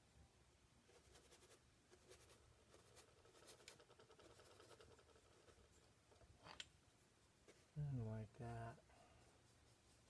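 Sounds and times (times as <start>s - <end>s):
paint brush scratching on panel: 0.8s - 6.3s, 7.0s - 10.0s.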